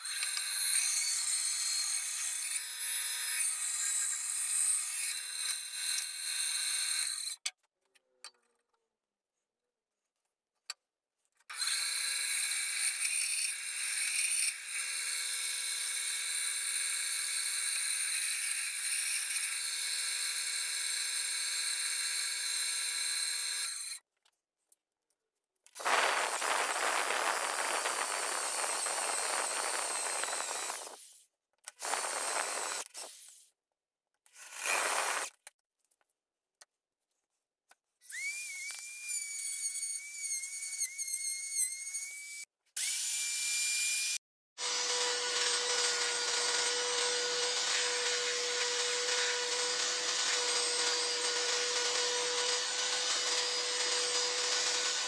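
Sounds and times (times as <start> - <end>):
power tool working wood: 25.8 - 31.1, 31.8 - 33.2, 41.8 - 55.0.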